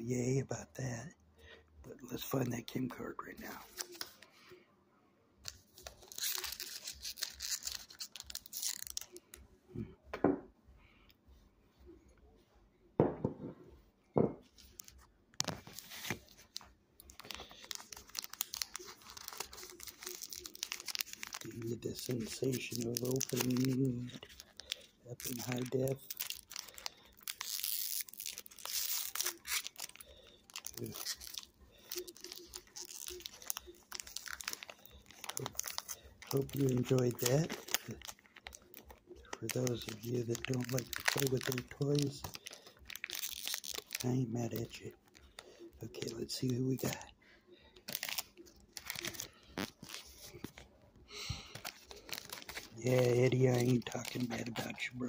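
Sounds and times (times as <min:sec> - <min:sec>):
card pack wrapper crinkling: 0:02.2 - 0:04.3, 0:05.5 - 0:09.3, 0:14.6 - 0:47.0, 0:47.8 - 0:55.0.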